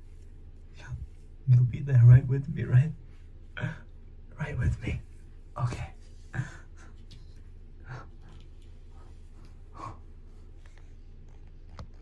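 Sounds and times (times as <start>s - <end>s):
low steady hum: 0.0s - 12.0s
man breathing nervously: 7.7s - 10.6s.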